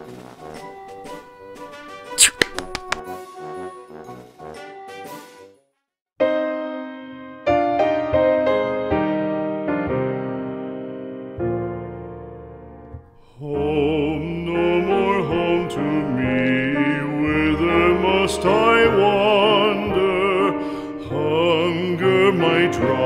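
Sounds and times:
opera-like singing voice: 0:13.3 - 0:23.0.

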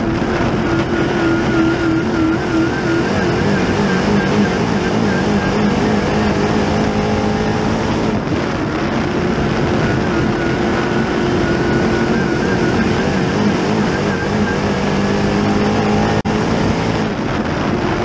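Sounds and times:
race car engine running hard: 0:00.0 - 0:18.0
tyre and dirt noise: 0:00.0 - 0:18.0.

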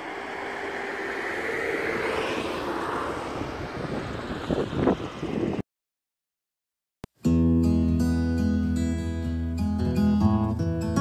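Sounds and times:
distant engine drone: 0:00.0 - 0:05.6.

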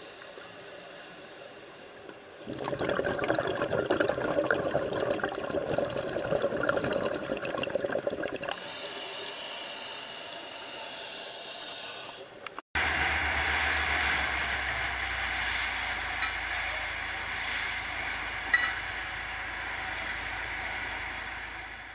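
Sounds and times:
spray hissing from wake: 0:00.0 - 0:02.1, 0:08.6 - 0:21.9
steady hiss: 0:00.0 - 0:02.4, 0:08.5 - 0:21.9
crackly underwater water noise: 0:00.0 - 0:09.3
loud wind: 0:12.8 - 0:21.9
speedboat engine hum: 0:12.8 - 0:21.9.

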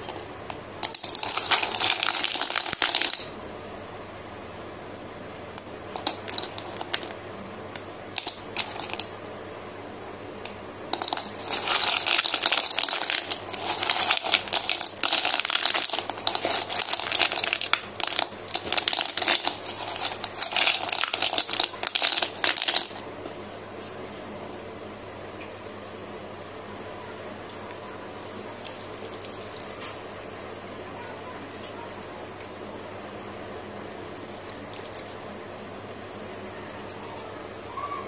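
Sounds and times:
pencil sticks clattering: 0:00.8 - 0:03.3, 0:06.0 - 0:07.2, 0:08.2 - 0:09.1, 0:10.9 - 0:23.0.

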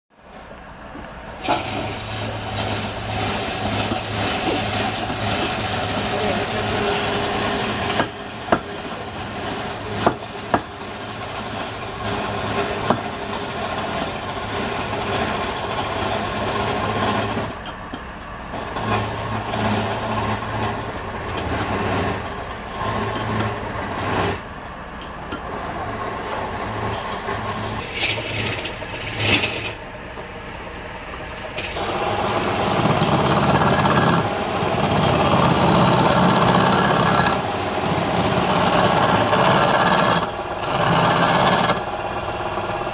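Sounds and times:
wood lathe humming: 0:00.9 - 0:17.6, 0:18.2 - 0:24.6, 0:25.4 - 0:42.9
gouge cutting wood: 0:01.4 - 0:17.6, 0:18.5 - 0:24.4, 0:31.7 - 0:41.9.

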